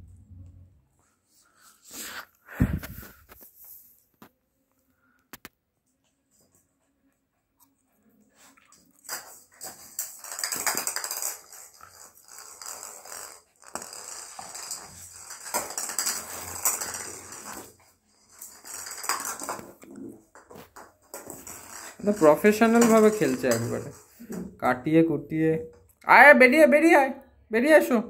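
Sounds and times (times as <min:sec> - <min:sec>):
plastic ball clattering on floor: 0:08.7 - 0:24.6.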